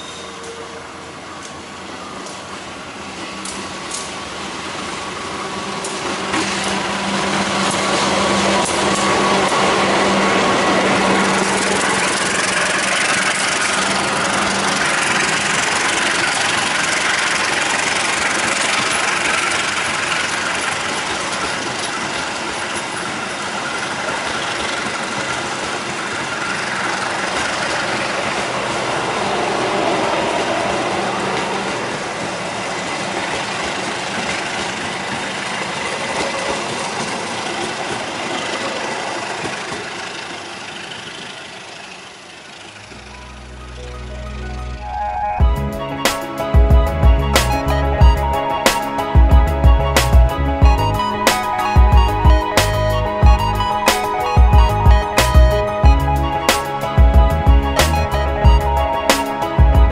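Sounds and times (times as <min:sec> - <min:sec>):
train wheels rumbling on rails: 0:00.0 - 0:43.6
diesel locomotive engine: 0:00.0 - 0:59.9.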